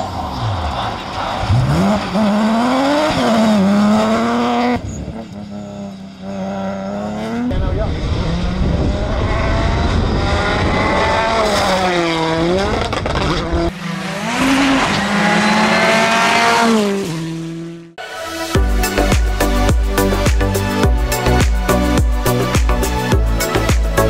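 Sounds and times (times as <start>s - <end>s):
rally car engines at full throttle: 0.0s - 18.0s.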